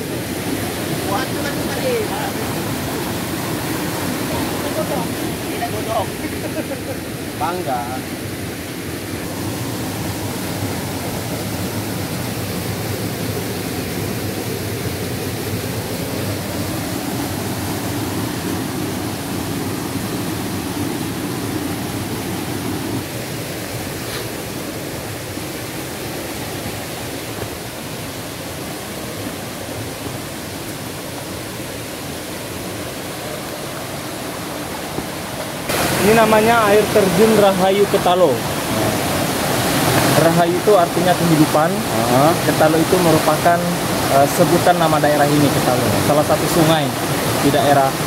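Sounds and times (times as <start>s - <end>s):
waterfall pouring into a pool: 23.0s - 48.0s.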